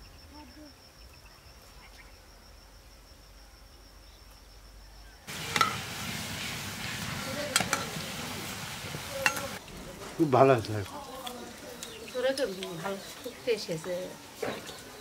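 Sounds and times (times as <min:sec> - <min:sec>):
high insect trill: 0:00.0 - 0:06.0
food frying in hot oil: 0:05.3 - 0:09.6.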